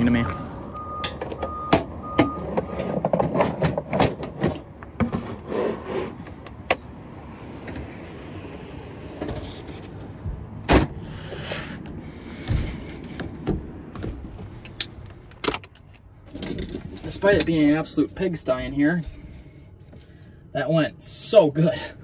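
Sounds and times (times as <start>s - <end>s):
wooden box sliding: 5.0s - 6.4s.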